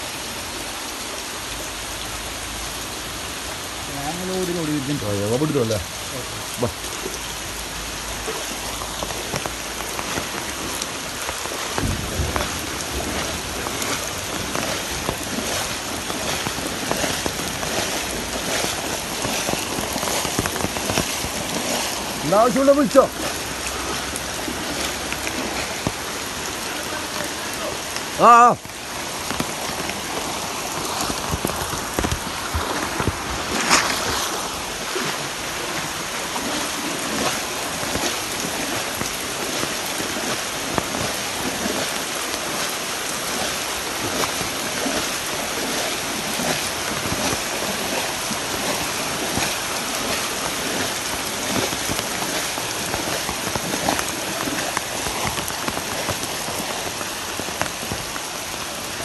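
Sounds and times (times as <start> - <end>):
heavy rain on water and foliage: 0.0 - 59.0
sharp knock or splash: 11.6 - 21.9.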